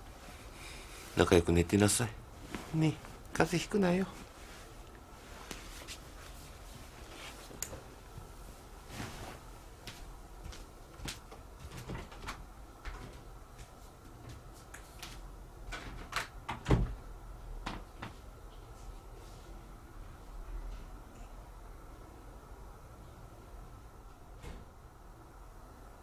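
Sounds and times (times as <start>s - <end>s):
bedding rustling: 0.0s - 16.0s.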